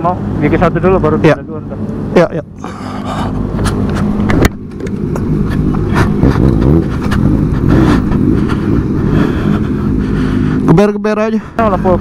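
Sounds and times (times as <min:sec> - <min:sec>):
motorcycle engine revving: 0:02.9 - 0:12.0.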